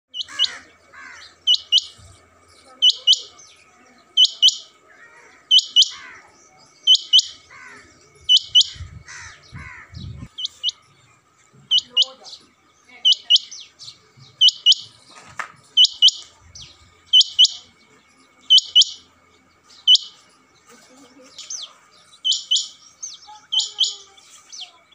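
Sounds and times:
quail calling: 0:00.1 - 0:02.0, 0:02.8 - 0:03.4, 0:04.2 - 0:06.2, 0:06.8 - 0:10.8, 0:11.7 - 0:12.2, 0:13.0 - 0:13.6, 0:14.4 - 0:14.9, 0:15.8 - 0:16.3, 0:17.1 - 0:17.7, 0:18.5 - 0:19.0, 0:19.9 - 0:20.2, 0:22.2 - 0:22.8, 0:23.5 - 0:24.1.

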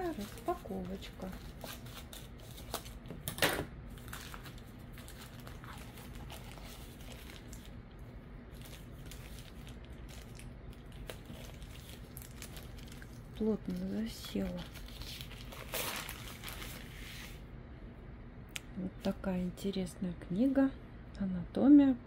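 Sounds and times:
thin plastic crinkling: 0:00.0 - 0:03.3, 0:03.9 - 0:17.4.

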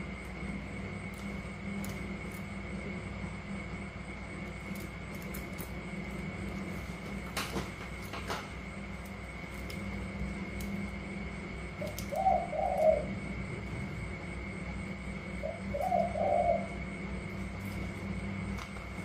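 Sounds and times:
steady background hum: 0:00.0 - 0:19.0
dove cooing: 0:11.7 - 0:14.1, 0:15.0 - 0:17.9.

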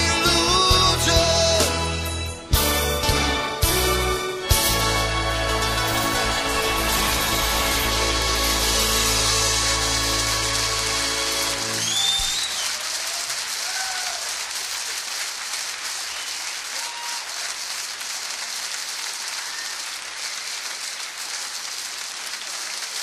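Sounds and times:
audience applause: 0:04.6 - 0:23.0
whistles: 0:11.8 - 0:13.2, 0:16.0 - 0:17.4, 0:19.3 - 0:20.6.

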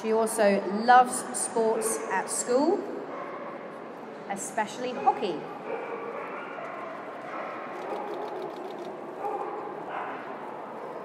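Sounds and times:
dog barking: 0:05.0 - 0:08.5, 0:09.2 - 0:11.0.

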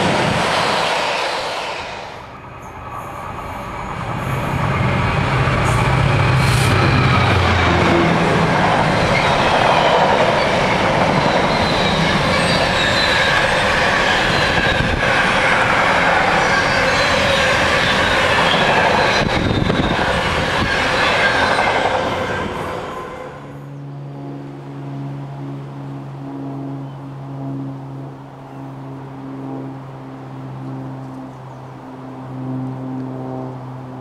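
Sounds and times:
freight train wheels rumbling: 0:00.0 - 0:24.5
high wheel squeals: 0:08.8 - 0:23.8.

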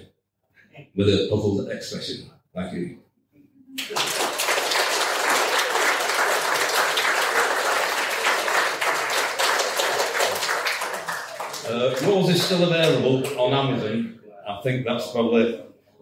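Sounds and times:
audience applauding: 0:03.8 - 0:13.7.

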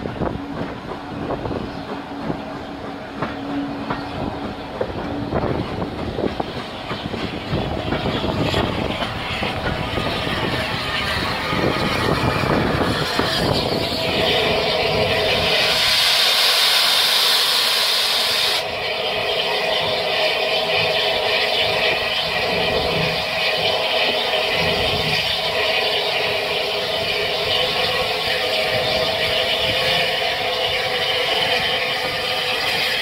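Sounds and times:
train wheels clattering: 0:00.0 - 0:18.2
steam hissing: 0:01.2 - 0:33.0.

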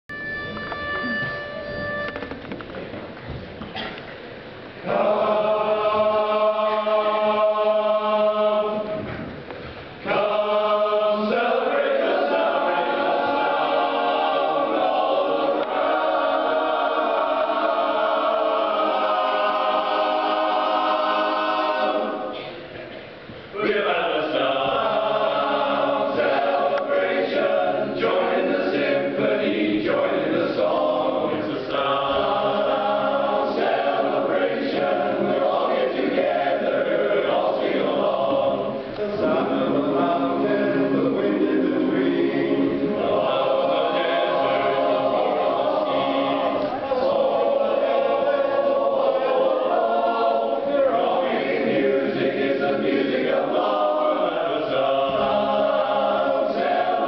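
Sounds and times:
men's chorus singing a cappella: 0:04.8 - 0:09.1, 0:10.0 - 0:22.6, 0:23.5 - 0:57.0.

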